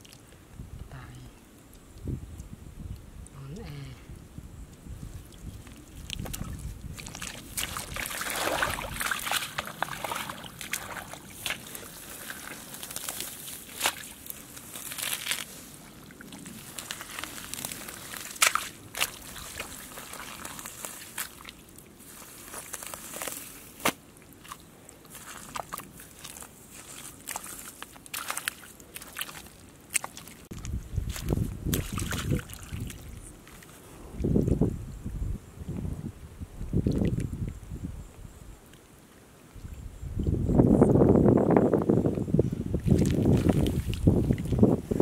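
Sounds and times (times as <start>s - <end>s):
small sharp clicks and splats: 4.7s - 33.8s
mud squelching and sloshing: 5.0s - 34.6s, 42.7s - 45.0s.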